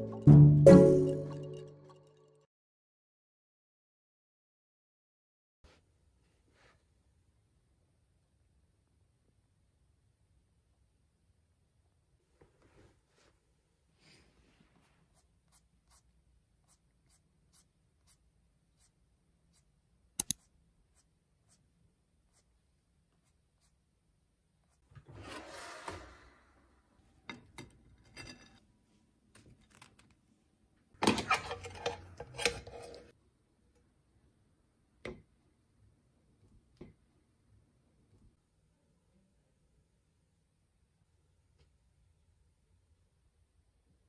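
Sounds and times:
sharp click: 20.2 - 20.4.

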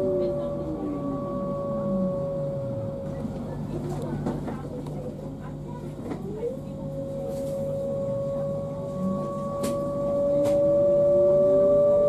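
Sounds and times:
lower rising drive tone: 0.0 - 3.8, 6.9 - 12.0
electric train traction whine: 0.0 - 5.4, 6.0 - 12.0.

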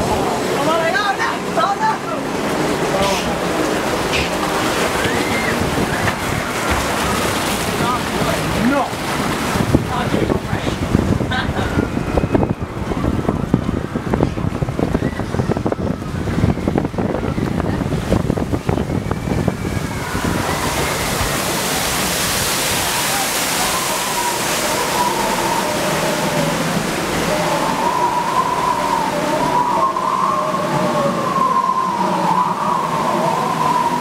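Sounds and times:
water rushing along flume: 0.0 - 34.0
wind buffeting microphone: 0.0 - 34.0
wavering tone: 22.7 - 34.0.

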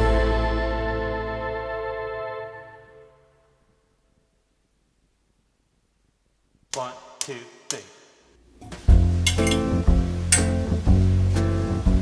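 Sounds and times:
background music: 0.0 - 3.6, 6.9 - 12.0.

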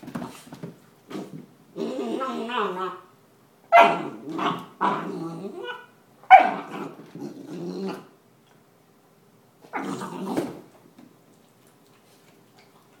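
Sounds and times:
puppy growling in play: 1.1 - 3.1, 3.7 - 8.2, 9.6 - 10.8.

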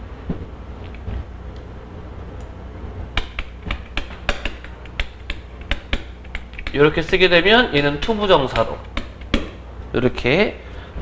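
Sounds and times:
low steady hum: 0.0 - 11.0
chalk tapping and scratching on chalkboard: 3.2 - 6.8, 8.5 - 9.6.

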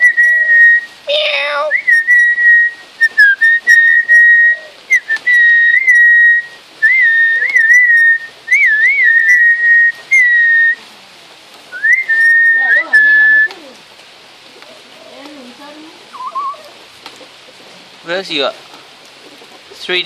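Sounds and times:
bird whistling clear notes: 1.7 - 10.8, 11.7 - 13.6, 16.1 - 16.7.

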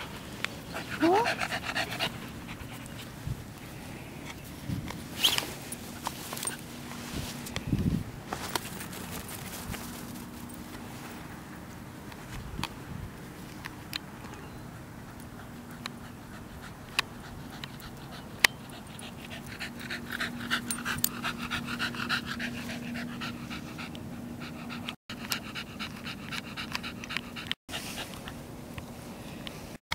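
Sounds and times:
dog panting rapidly: 0.7 - 3.1, 15.2 - 28.2.

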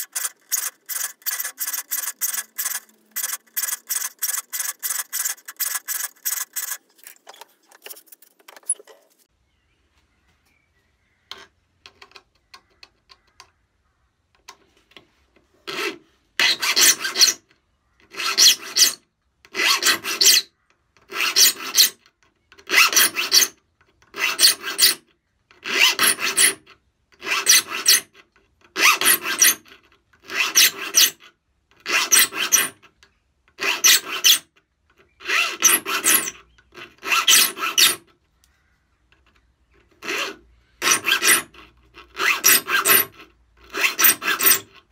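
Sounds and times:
file rasping on saw teeth: 0.0 - 8.4, 15.7 - 17.4, 18.1 - 19.0, 19.6 - 20.5, 21.1 - 22.0, 24.2 - 25.0, 25.7 - 26.6, 27.2 - 28.1, 28.8 - 29.7, 30.3 - 31.2, 31.9 - 32.8, 33.6 - 34.5, 35.2 - 38.0, 40.0 - 44.8.

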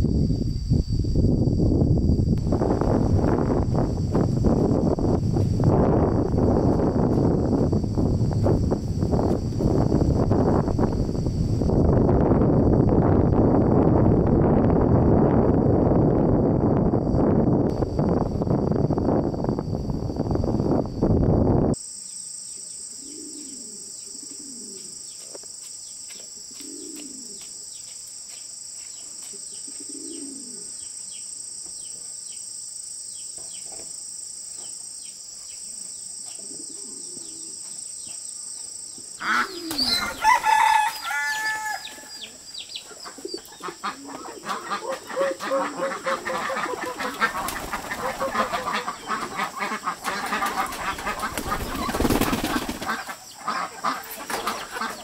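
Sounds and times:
high insect drone: 0.0 - 55.0
rooster crowing: 39.2 - 42.4
low bird call: 39.2 - 49.5
chickens clucking: 42.8 - 55.0
wings flapping: 44.2 - 55.0.

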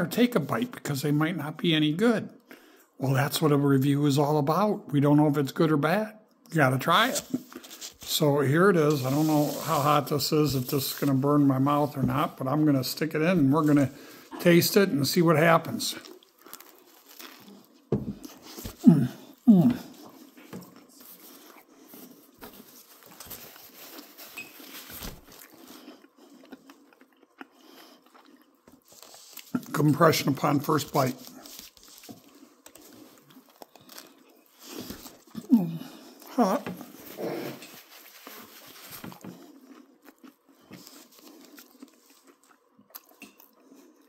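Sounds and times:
person chewing food: 15.9 - 29.7, 31.2 - 44.0.

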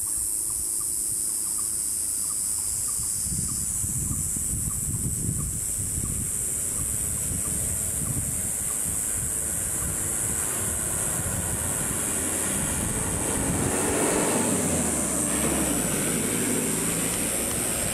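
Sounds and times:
high-pitched hiss: 0.0 - 13.4
wind buffeting microphone: 2.7 - 17.9.

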